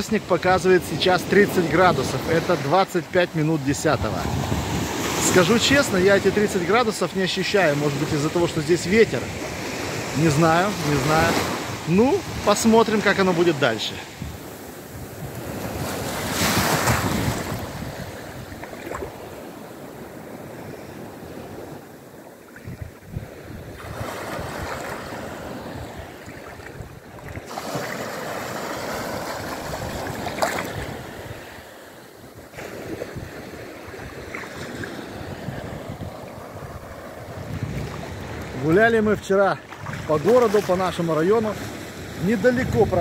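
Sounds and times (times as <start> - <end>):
sea waves breaking on beach: 0.0 - 43.0
wind buffeting microphone: 14.1 - 19.4, 22.6 - 27.6, 32.3 - 39.0.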